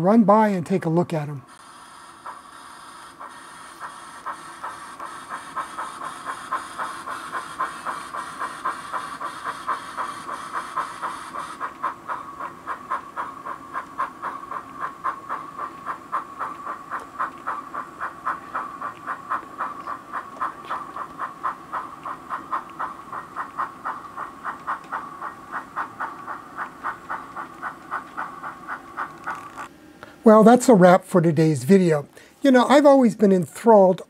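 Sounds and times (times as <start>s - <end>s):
model steam locomotive chuffing: 1.5s - 11.6s.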